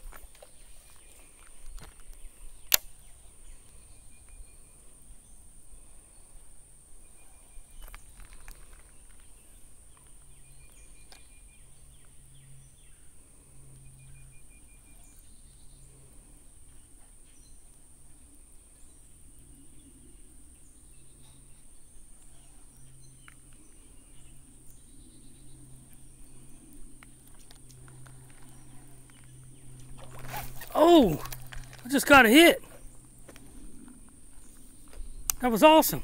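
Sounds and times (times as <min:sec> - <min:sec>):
sharp click: 0:02.6 - 0:02.9.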